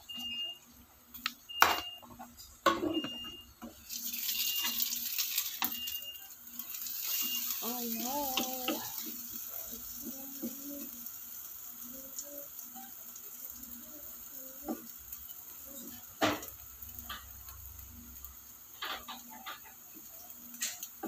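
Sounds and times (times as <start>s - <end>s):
batter sizzling in a frying pan: 0.0s - 21.0s.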